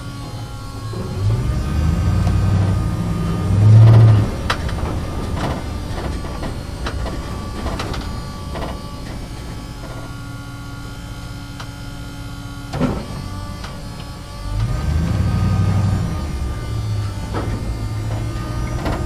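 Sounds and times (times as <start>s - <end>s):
truck engine hum: 0.0s - 19.0s
knocks and rattles: 3.6s - 10.2s.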